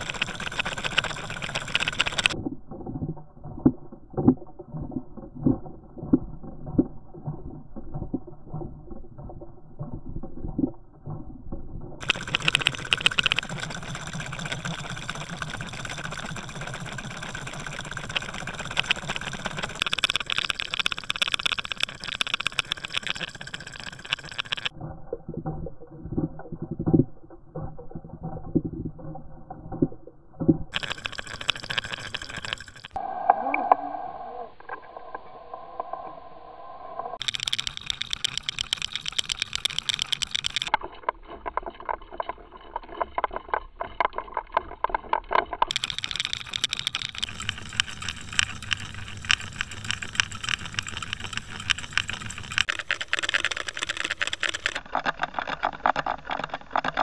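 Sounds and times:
lure clicking and rattling: 0:00.0 - 0:02.4, 0:12.0 - 0:24.8, 0:30.7 - 0:33.0, 0:37.2 - 0:57.0.

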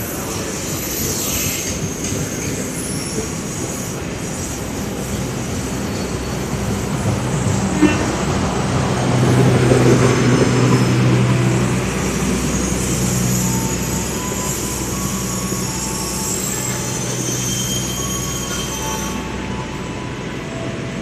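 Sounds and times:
train wheels rumbling on rails: 0:00.0 - 0:21.0
high-pitched wheel squealing: 0:11.8 - 0:19.8.

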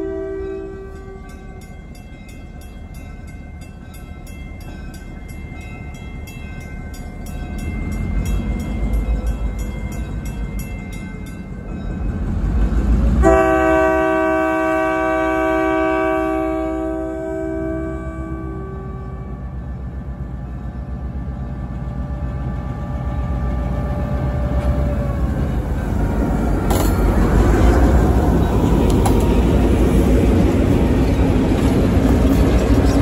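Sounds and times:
locomotive air horn blast: 0:00.0 - 0:01.3, 0:13.2 - 0:19.4
crossing bell ringing: 0:00.0 - 0:19.4
diesel locomotives rumbling: 0:00.0 - 0:33.0.

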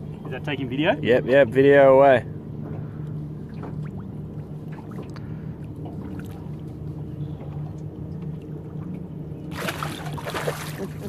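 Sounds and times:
boat engine idling: 0:00.0 - 0:11.0
water splashes and slaps: 0:03.5 - 0:06.7, 0:08.2 - 0:11.0.

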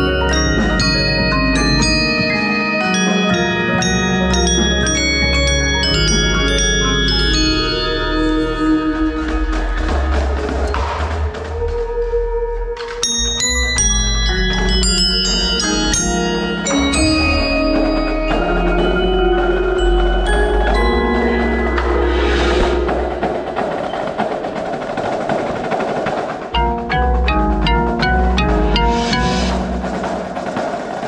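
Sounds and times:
xylophone notes: 0:00.0 - 0:09.9, 0:13.0 - 0:23.9, 0:26.6 - 0:30.2
marimbas: 0:00.0 - 0:31.0
cymbal-like wash: 0:19.6 - 0:24.6.

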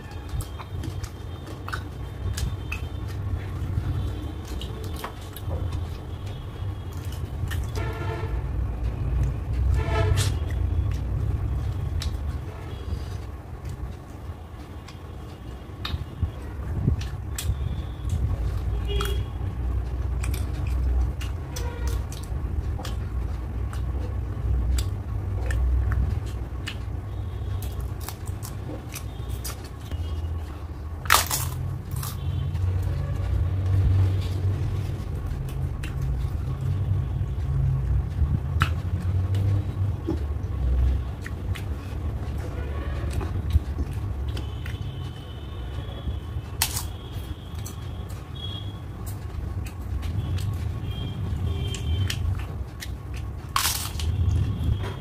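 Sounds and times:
chewing food: 0:00.0 - 0:07.8, 0:08.7 - 0:55.0.

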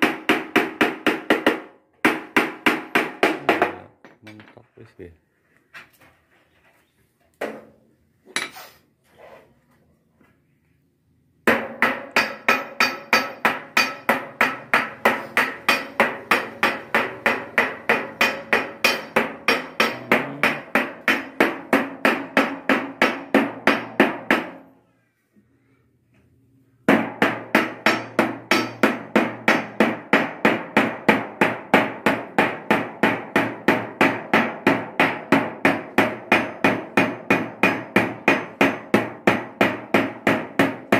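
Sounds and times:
hammer on sheet metal: 0:00.0 - 0:03.8, 0:11.4 - 0:24.7, 0:26.8 - 0:40.9.

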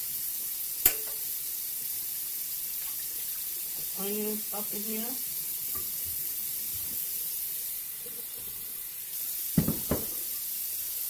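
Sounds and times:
onions sizzling in a pot: 0:00.0 - 0:11.0
spoon knocking against pot: 0:00.9 - 0:01.2, 0:09.6 - 0:10.2.

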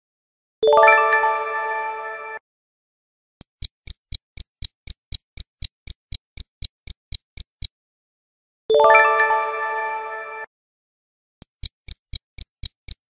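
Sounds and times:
stopwatch ticking: 0:03.4 - 0:07.8, 0:11.4 - 0:13.0.

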